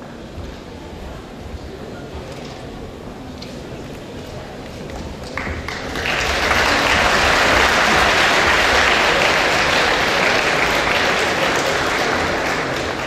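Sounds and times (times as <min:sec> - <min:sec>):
crowd applauding: 0:05.2 - 0:13.0.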